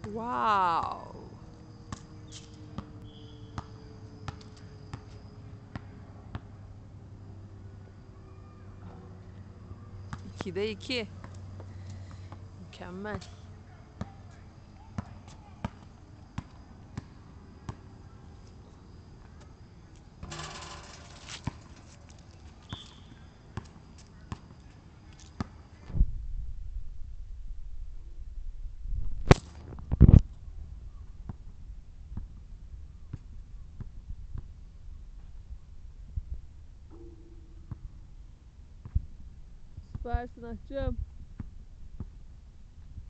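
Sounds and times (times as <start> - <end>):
basketball bouncing on asphalt: 1.9 - 6.6, 14.8 - 17.9, 20.2 - 24.6
rattling: 20.2 - 22.2.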